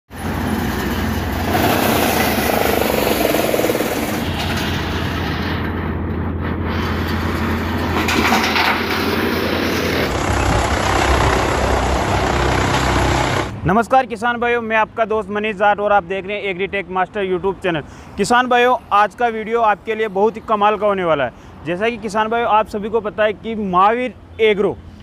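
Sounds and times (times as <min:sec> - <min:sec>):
tractor engine low hum: 0:00.1 - 0:13.6
wood chipper running under load: 0:00.1 - 0:13.6.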